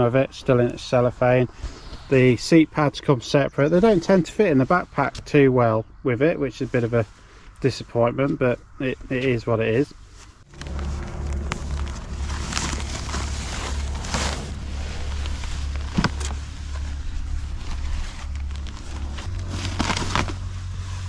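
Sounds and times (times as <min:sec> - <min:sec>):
steady low hum: 0:00.0 - 0:21.0
plastic wrapping crinkling: 0:10.4 - 0:21.0.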